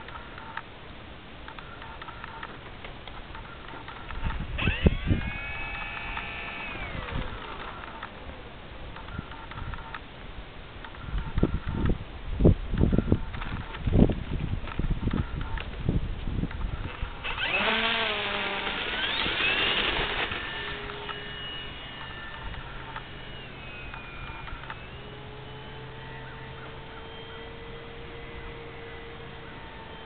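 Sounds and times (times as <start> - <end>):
model plane motor whining: 4.0 - 9.8, 16.8 - 30.0.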